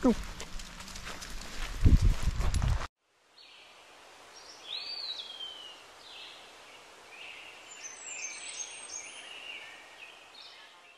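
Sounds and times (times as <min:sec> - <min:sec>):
faint outdoor hiss: 0:03.0 - 0:10.9.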